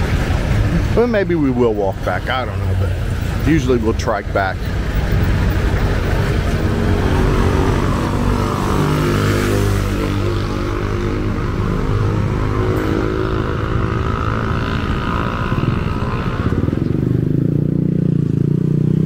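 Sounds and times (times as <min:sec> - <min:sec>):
street noise: 0:00.0 - 0:19.0
motorcycle engine running: 0:04.8 - 0:19.0.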